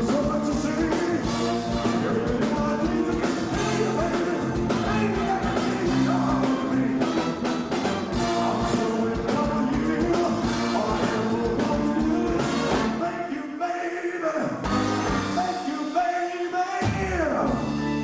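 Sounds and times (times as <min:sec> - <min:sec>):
drums: 0:00.0 - 0:13.4, 0:14.4 - 0:18.0
live rock and roll band: 0:00.0 - 0:13.4, 0:14.6 - 0:18.0
saxophones and trumpet: 0:00.3 - 0:13.3, 0:14.6 - 0:16.0.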